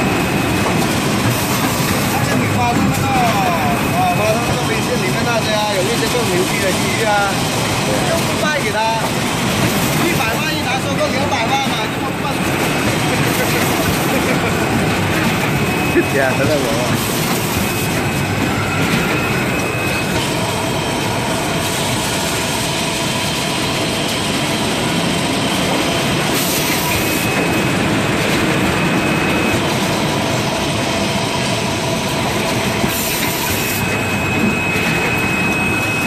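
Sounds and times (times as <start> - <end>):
packing machine clatter: 0.0 - 20.8
thin high machine whine: 0.0 - 36.0.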